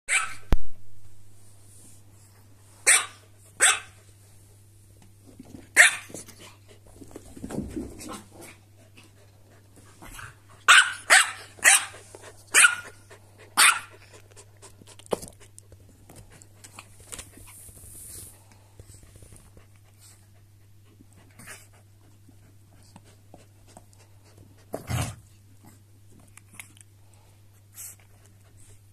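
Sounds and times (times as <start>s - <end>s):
dogs barking high and sharp: 0.1s - 0.5s, 2.8s - 4.0s, 5.8s - 6.1s, 10.2s - 14.1s.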